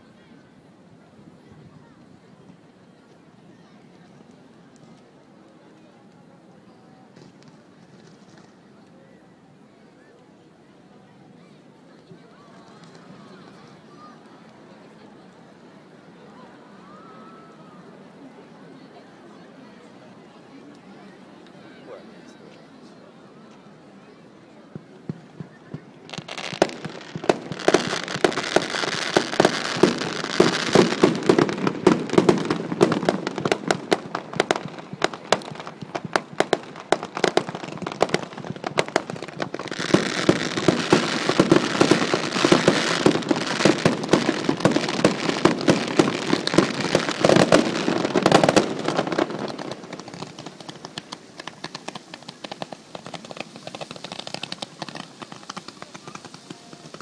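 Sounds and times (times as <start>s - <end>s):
fireworks crackling and popping: 2.2s - 6.3s, 7.0s - 9.0s, 11.9s - 15.0s, 24.7s - 57.0s.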